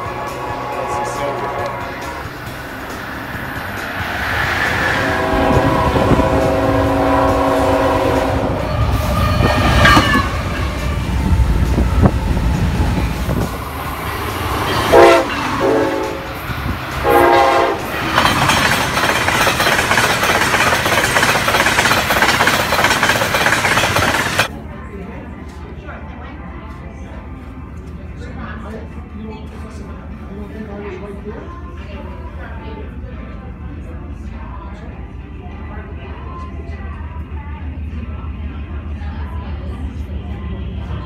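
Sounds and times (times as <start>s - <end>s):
train horn: 0.0s - 3.1s, 3.7s - 12.1s, 13.3s - 18.0s
steel wheels clattering: 17.8s - 24.5s.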